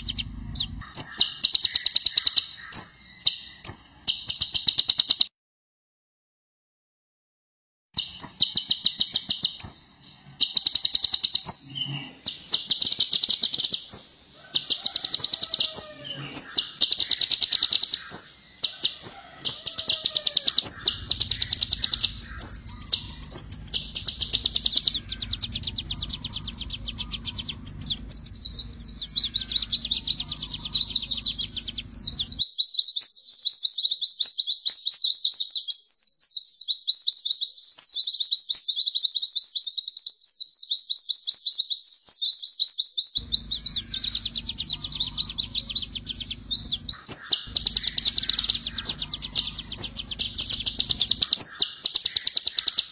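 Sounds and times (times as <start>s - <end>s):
faint low hum: 0.0s - 2.3s, 8.8s - 32.4s, 43.2s - 52.0s
bird singing rapid trills: 0.0s - 5.3s, 8.0s - 32.8s, 43.2s - 52.9s.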